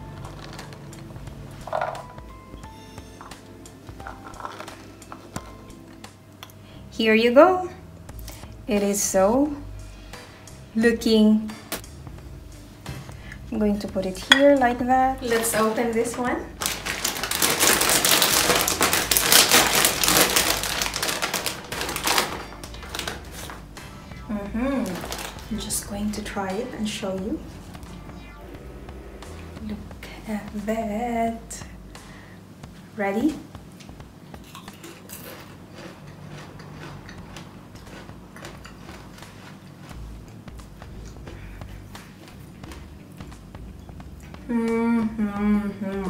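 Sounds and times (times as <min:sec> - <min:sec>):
person chewing crunchy chip: 0:16.6 - 0:23.6, 0:25.0 - 0:25.5, 0:34.4 - 0:40.4
plastic bag crinkling: 0:16.6 - 0:23.6, 0:24.7 - 0:25.8.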